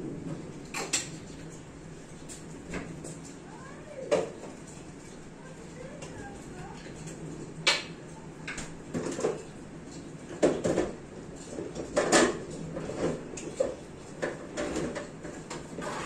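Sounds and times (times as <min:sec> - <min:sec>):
sharp knocks and clatters: 0:06.0 - 0:16.0.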